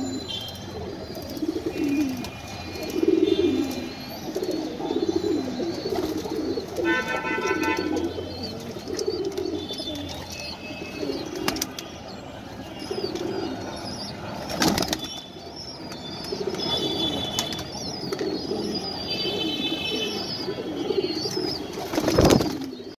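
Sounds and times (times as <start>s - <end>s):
pigeons cooing: 0.0s - 11.8s, 12.6s - 23.0s
wings fluttering: 21.8s - 22.7s.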